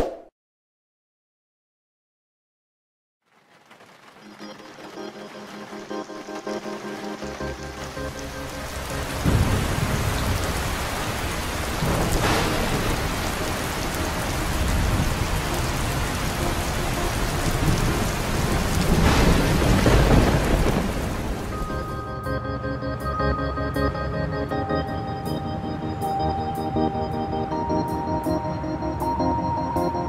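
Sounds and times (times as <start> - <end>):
steady rain: 3.2 - 22.0
thunder rolling: 8.8 - 21.9
sharp thunder crack: 9.2 - 15.7, 17.5 - 21.7.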